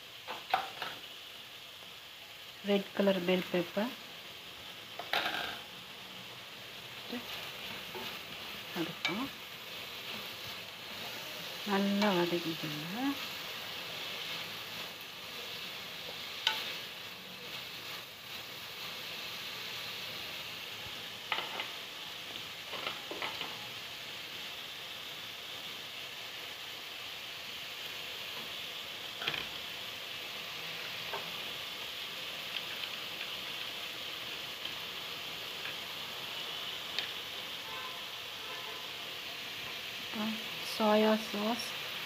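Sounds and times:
food sizzling in a wok: 0.0 - 42.0
spatula scraping and knocking pan: 21.3 - 21.8, 22.7 - 23.6.

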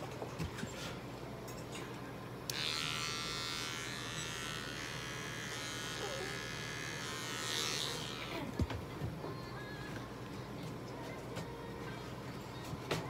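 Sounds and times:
hair clippers buzzing: 2.5 - 8.6.

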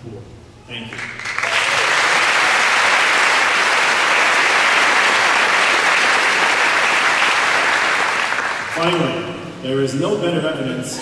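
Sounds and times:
large audience applauding: 0.9 - 9.1.

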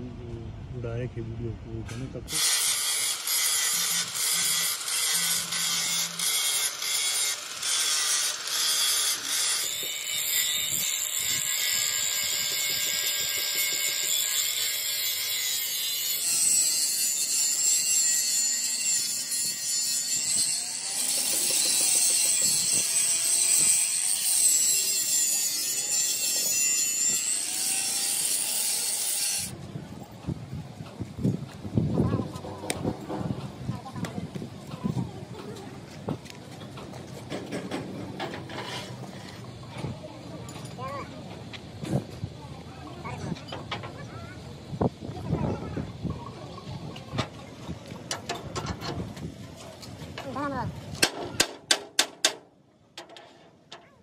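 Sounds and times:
angle grinder cutting steel: 2.3 - 29.6.

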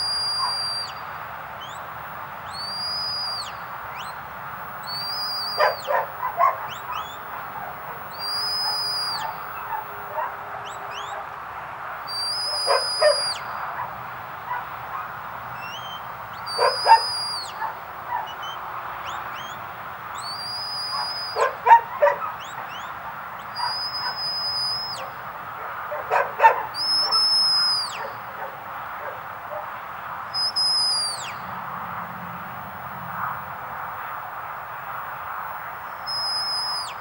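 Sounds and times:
quick whistle chirps: 0.0 - 1.0, 2.5 - 4.2, 4.9 - 6.0, 8.1 - 9.8, 12.1 - 13.5, 15.6 - 17.6, 20.2 - 21.6, 23.6 - 25.1, 26.8 - 28.1, 30.4 - 31.4, 36.1 - 37.0
shepherd's whistle notes: 0.0 - 1.0, 2.5 - 4.2, 4.9 - 7.2, 8.1 - 9.8, 12.1 - 13.5, 15.6 - 17.6, 20.2 - 22.9, 23.5 - 25.1, 26.8 - 28.2, 30.4 - 31.4, 36.1 - 37.0.

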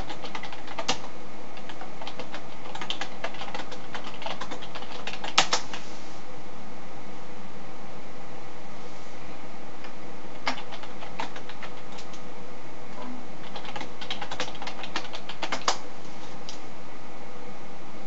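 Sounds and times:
keyboard typing: 0.0 - 5.8, 9.8 - 12.2, 13.4 - 15.8
steady background hiss: 0.0 - 18.0.

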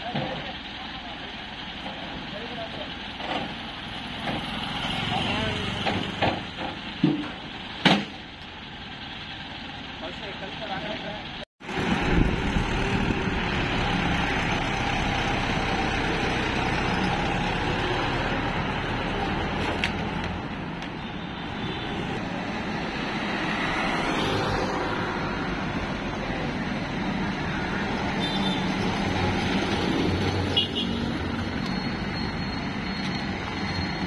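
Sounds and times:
road noise: 0.0 - 34.0
tractor diesel engine running: 0.2 - 5.8, 6.6 - 19.6.

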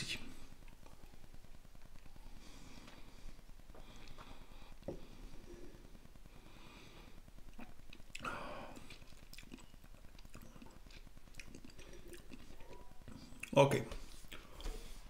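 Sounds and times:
small mouth clicks: 7.5 - 13.6
wet mouth sounds: 7.5 - 13.6.

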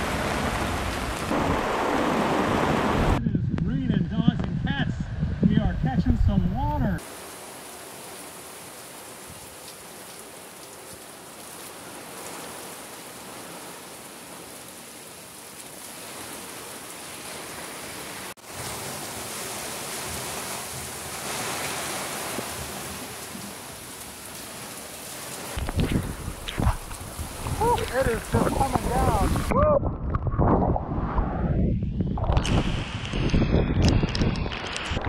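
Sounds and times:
heavy rain on boat deck: 0.0 - 3.2, 7.0 - 29.6.

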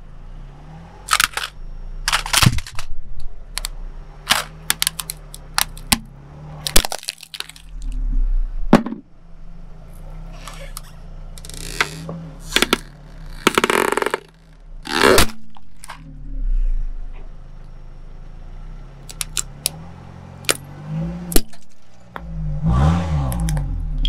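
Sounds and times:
car engine running: 0.0 - 24.0
plastic dome cracking under tyre: 4.3 - 8.0, 11.4 - 16.0.

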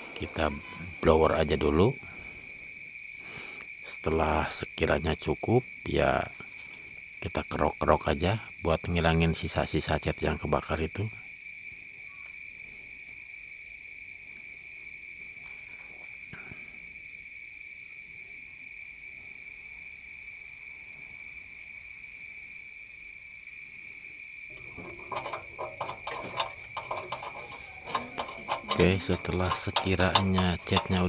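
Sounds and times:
knife blade scraping metal: 24.6 - 31.0.

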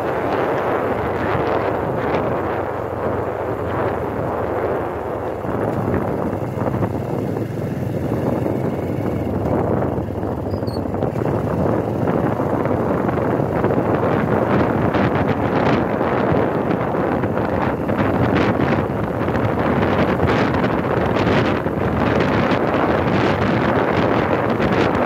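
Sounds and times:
vehicle running noise: 0.0 - 25.0
wind buffeting microphone: 0.0 - 25.0.

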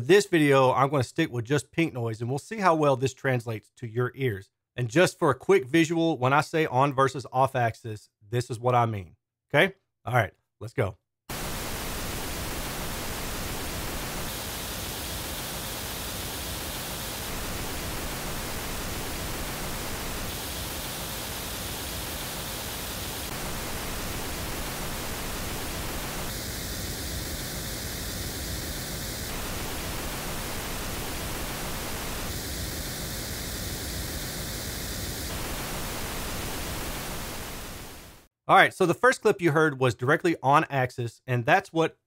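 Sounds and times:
pink noise hiss: 11.3 - 38.3.

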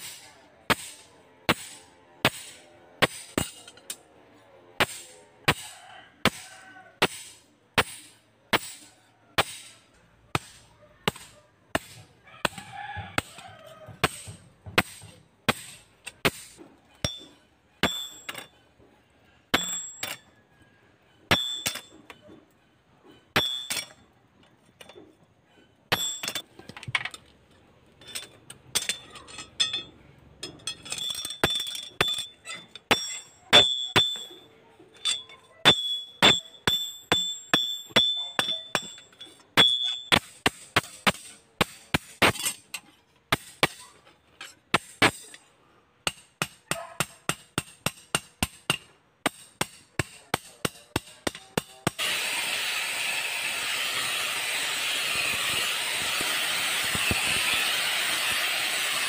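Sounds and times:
hammer striking metal blade on anvil: 0.0 - 4.1, 4.8 - 12.6, 13.2 - 18.6, 19.5 - 20.3, 21.3 - 22.2, 23.1 - 24.0, 25.9 - 26.4, 28.8 - 45.4, 46.0 - 52.1.

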